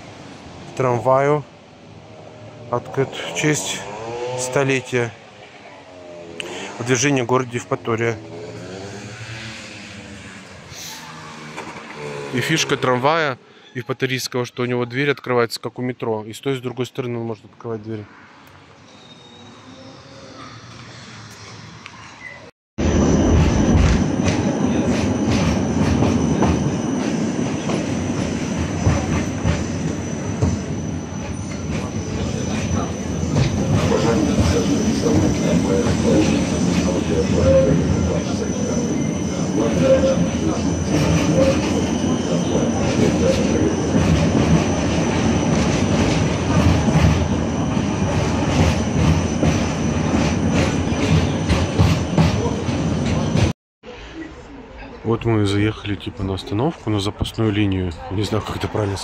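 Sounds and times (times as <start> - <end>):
tram wheels rumbling on rails: 0.0 - 13.3, 19.7 - 53.5.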